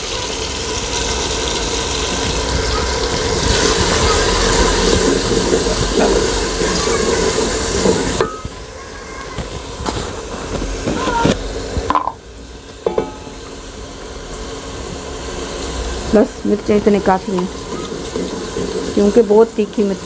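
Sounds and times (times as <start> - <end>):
masala sizzling in a pot: 0.0 - 20.0.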